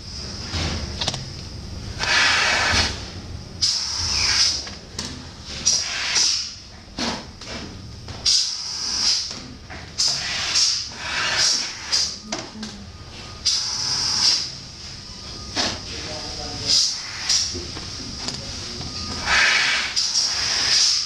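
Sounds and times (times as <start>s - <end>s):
compressed air hissing bursts: 2.0s - 3.0s, 5.6s - 6.6s, 10.0s - 12.1s, 19.2s - 21.0s.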